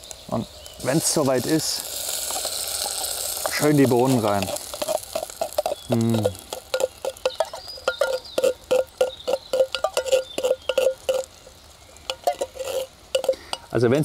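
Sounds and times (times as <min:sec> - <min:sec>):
wooden stick knocking metal can: 0:03.4 - 0:11.3, 0:12.1 - 0:13.6.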